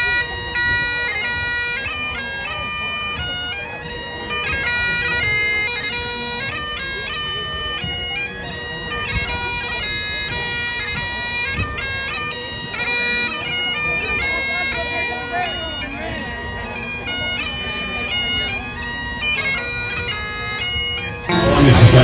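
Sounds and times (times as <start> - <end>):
bagpipe playing a quick tune: 0.0 - 22.0.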